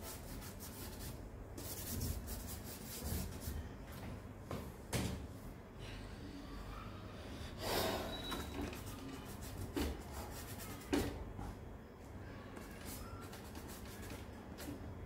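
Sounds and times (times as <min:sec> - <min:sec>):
charcoal rubbing on paper: 0:00.0 - 0:03.5, 0:08.7 - 0:10.9.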